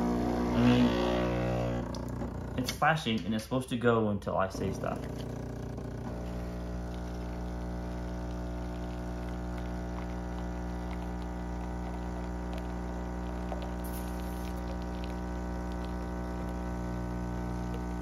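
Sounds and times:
espresso machine pump humming: 0.0s - 3.2s, 4.4s - 18.0s
coffee streaming into mug: 4.5s - 18.0s.

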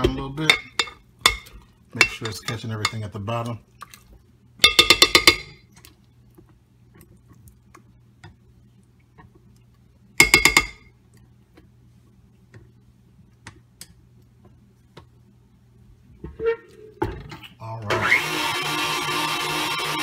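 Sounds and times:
stand mixer humming: 18.0s - 20.0s.

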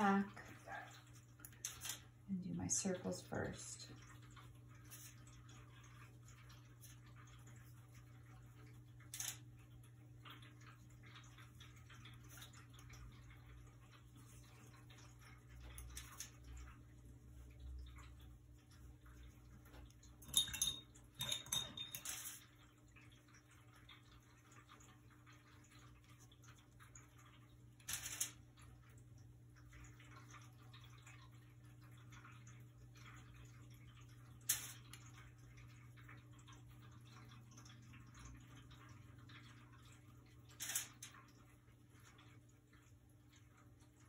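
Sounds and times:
low steady hum: 0.0s - 44.0s
brush clinking against glass jar: 20.2s - 22.4s.

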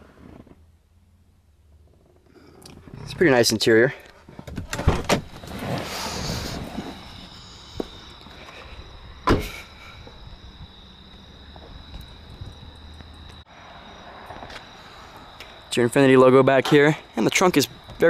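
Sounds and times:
rustling: 4.0s - 8.8s
car door thud: 9.2s - 9.6s.

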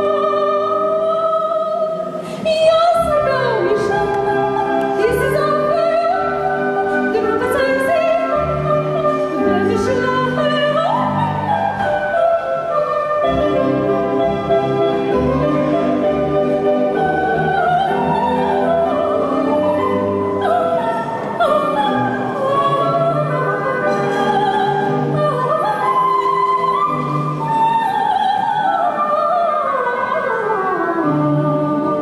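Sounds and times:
woman singing operatically: 0.0s - 14.5s, 16.9s - 32.0s
orchestral accompaniment: 0.0s - 32.0s.

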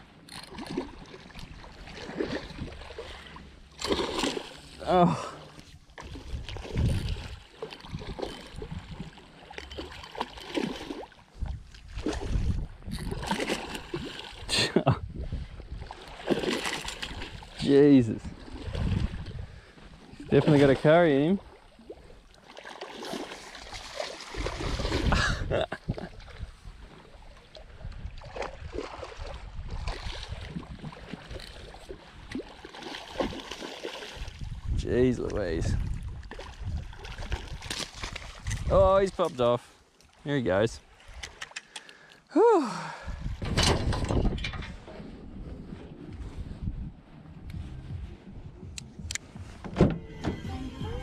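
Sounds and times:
water splashing and sloshing: 0.0s - 51.0s
low rumble: 43.3s - 51.0s.

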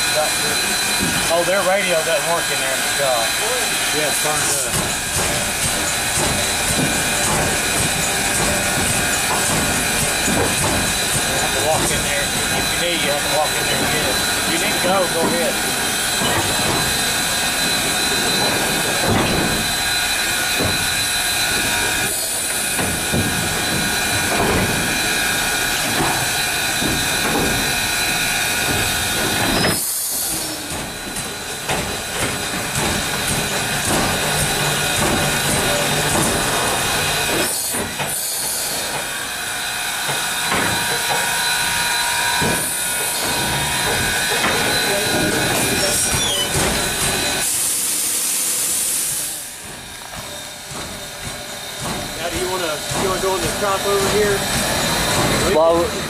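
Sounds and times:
steady high tones: 0.0s - 29.8s
steam locomotive hissing: 0.0s - 56.0s.

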